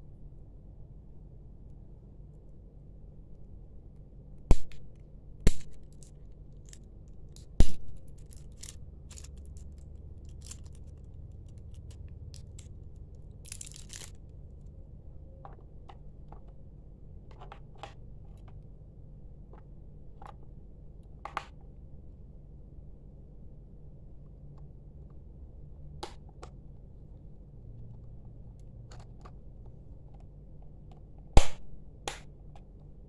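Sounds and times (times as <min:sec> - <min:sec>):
batteries clicking: 0:05.6 - 0:14.3.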